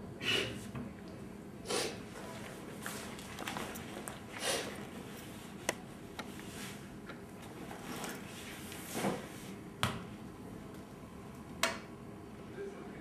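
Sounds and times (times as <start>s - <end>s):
ball thudding on hard floor: 9.8s - 10.1s.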